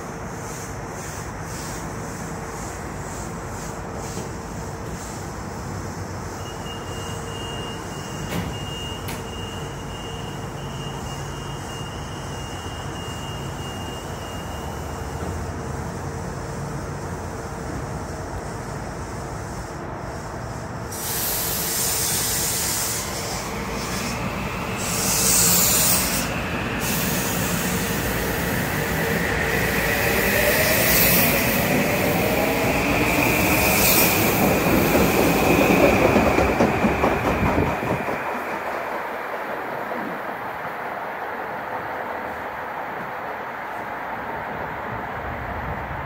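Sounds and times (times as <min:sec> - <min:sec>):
train wheels rumbling and clattering: 0:00.0 - 0:06.2, 0:08.1 - 0:09.8, 0:14.4 - 0:43.2.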